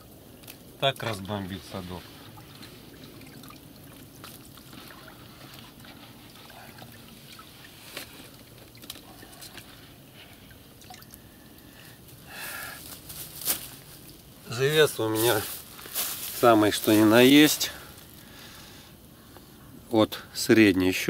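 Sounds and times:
water dripping and splashing: 0.4s - 11.9s, 12.9s - 14.5s
water swish: 1.6s - 11.2s.

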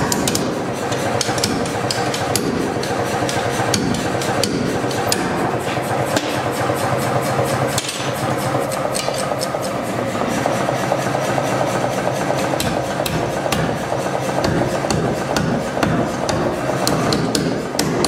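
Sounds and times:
hammer striking steel on anvil: 0.0s - 6.6s, 12.6s - 13.8s, 14.4s - 18.0s
steady mechanical hum: 0.0s - 18.0s.

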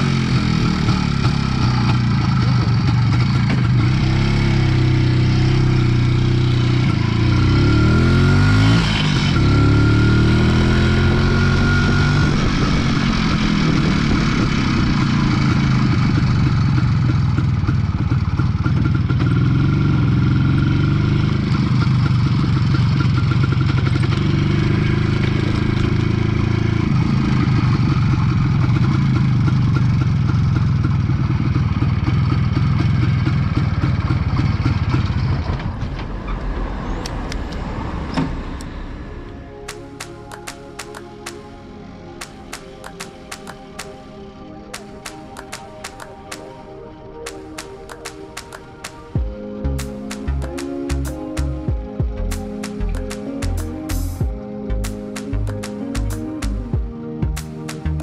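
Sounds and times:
two-stroke motorcycle engine accelerating: 0.0s - 39.0s.

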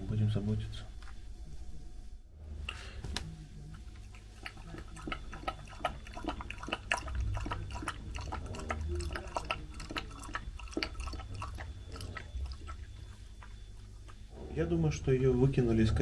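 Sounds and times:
puppy mouth smacking: 3.2s - 14.3s.

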